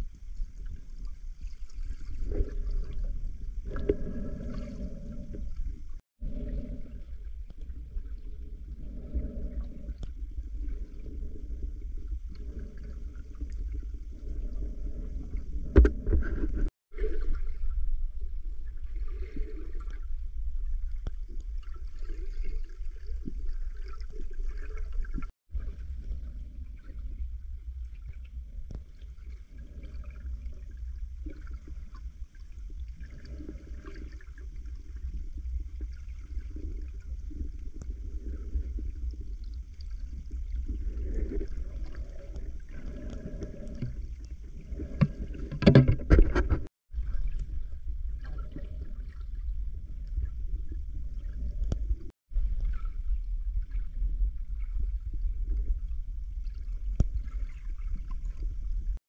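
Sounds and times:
steady low rumble: 0:46.6 - 0:57.6.

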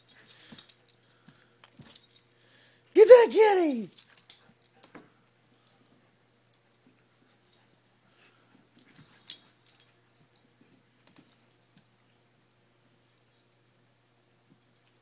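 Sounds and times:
toy jingling and clicking: 0:00.0 - 0:10.5.

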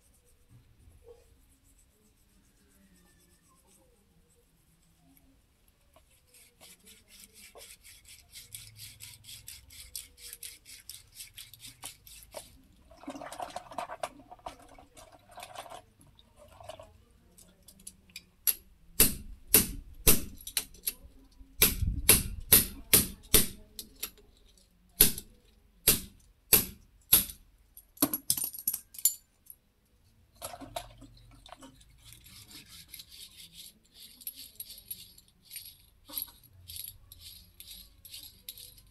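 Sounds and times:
scratchy scrubbing on metal: 0:00.0 - 0:15.8, 0:30.4 - 0:36.4.

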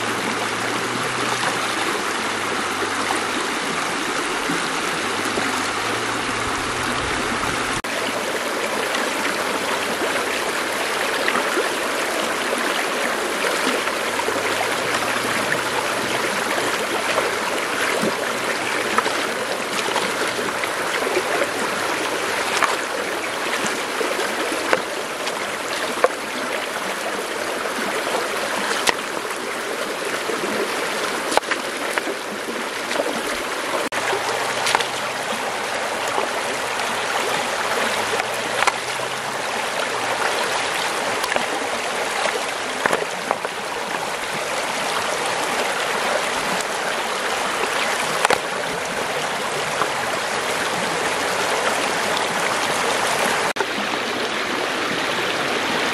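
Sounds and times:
stream rushing over stones: 0:00.0 - 0:55.9
stones knocking in water: 0:16.6 - 0:26.3, 0:28.6 - 0:29.2, 0:31.1 - 0:35.3, 0:37.2 - 0:39.1, 0:42.2 - 0:43.7, 0:48.0 - 0:48.6.

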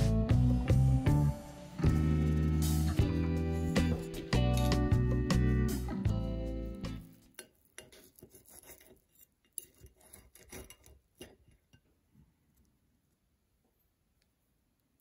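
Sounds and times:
guitar music: 0:00.0 - 0:07.3
cutlery scraping a ceramic plate: 0:03.5 - 0:05.0, 0:07.2 - 0:11.9.

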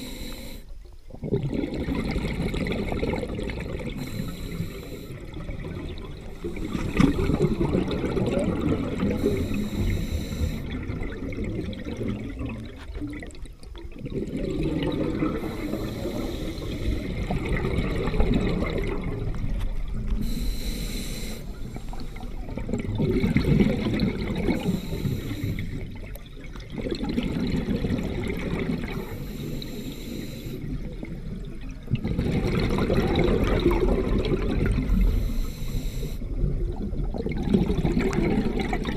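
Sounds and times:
regulator hissing inhale: 0:00.0 - 0:00.7, 0:04.0 - 0:05.2, 0:09.2 - 0:10.7, 0:15.4 - 0:17.3, 0:20.2 - 0:22.4, 0:24.6 - 0:25.9, 0:28.9 - 0:30.7, 0:34.9 - 0:36.3
rumble of exhaust bubbles: 0:01.0 - 0:20.4, 0:21.4 - 0:29.3, 0:30.6 - 0:35.5, 0:36.2 - 0:38.9.

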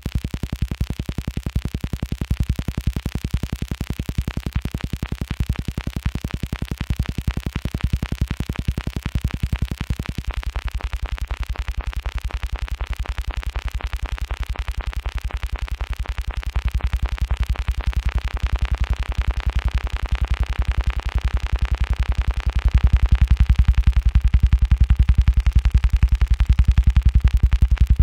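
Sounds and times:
deep bass: 0:22.8 - 0:28.0.

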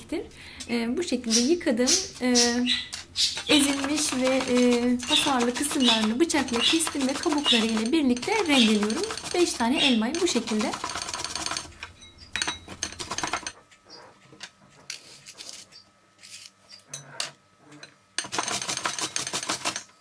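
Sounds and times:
apples grated on metal grater: 0:03.4 - 0:11.8.

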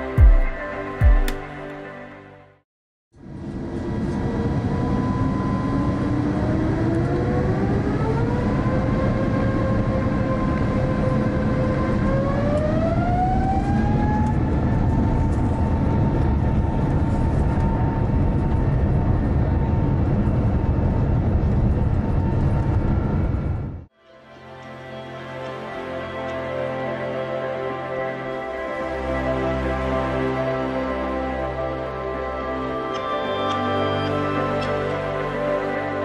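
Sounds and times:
jet engine whine rising: 0:03.2 - 0:23.9
low rumble of aircraft: 0:03.2 - 0:23.9.

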